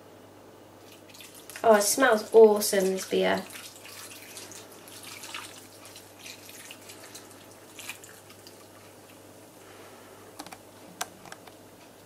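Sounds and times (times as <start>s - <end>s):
faint splashing trickle: 0.8s - 9.2s
liquid dripping: 0.8s - 9.2s.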